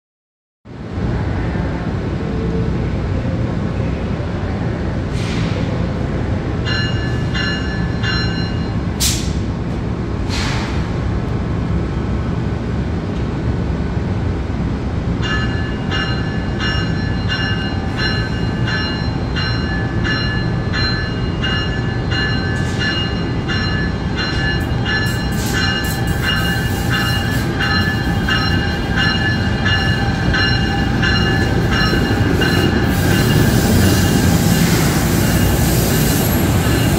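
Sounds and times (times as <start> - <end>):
short air hisses: 5.2 - 5.6, 10.3 - 10.9
locomotive bell ringing: 6.6 - 8.9, 15.2 - 36.9.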